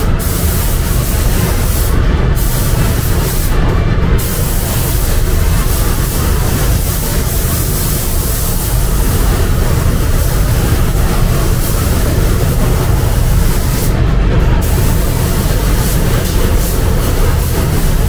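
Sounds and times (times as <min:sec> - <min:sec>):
paint spray gun hissing: 0:00.0 - 0:03.6, 0:04.2 - 0:14.0, 0:14.6 - 0:18.0
low rumble: 0:00.0 - 0:18.0.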